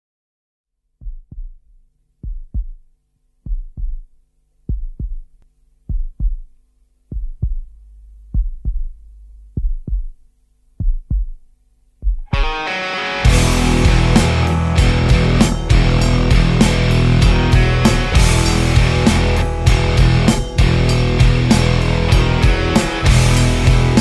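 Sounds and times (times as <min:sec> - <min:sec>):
heartbeat-like double thumps: 0:01.0 - 0:02.8, 0:03.4 - 0:04.1, 0:04.7 - 0:10.2, 0:10.8 - 0:11.4, 0:12.0 - 0:12.4, 0:13.3 - 0:24.0
faint low drone: 0:13.3 - 0:24.0.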